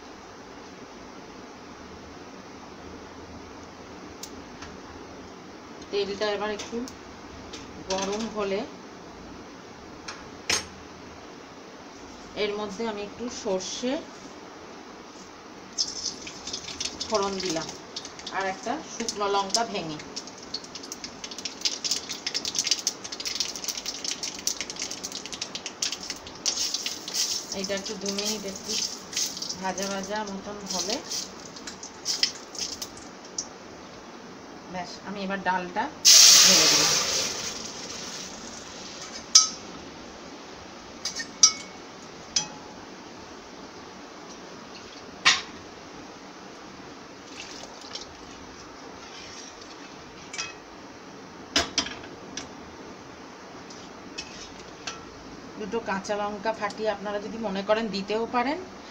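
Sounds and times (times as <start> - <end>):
faint steady hiss: 0.0 - 58.9
seeds sizzling in hot oil: 15.7 - 33.5, 36.0 - 39.5, 53.6 - 55.2
metal spatula clinking on pots: 39.3 - 39.6, 41.0 - 42.7, 50.3 - 50.6.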